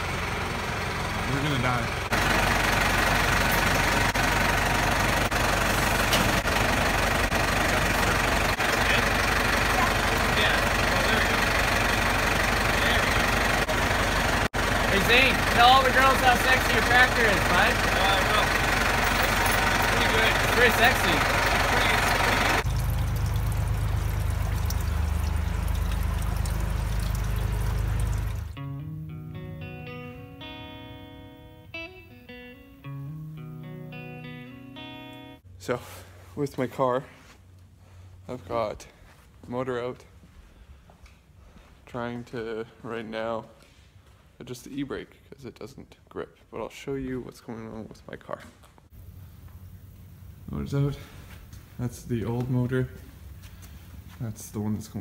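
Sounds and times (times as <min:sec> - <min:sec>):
tractor diesel engine idling: 0:00.0 - 0:28.6, 0:48.9 - 0:54.8
fluid splashing into plastic tub: 0:22.6 - 0:28.5.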